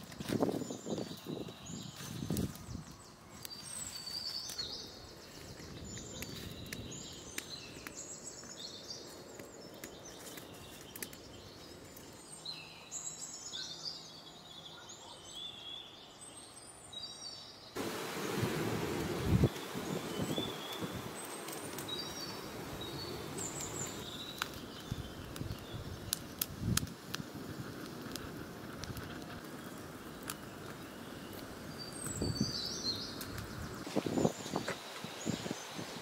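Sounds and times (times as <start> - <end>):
twig fire crackling: 0.0 - 12.6, 17.8 - 36.0
small birds chirping: 0.4 - 36.0
steady hiss: 17.8 - 36.0.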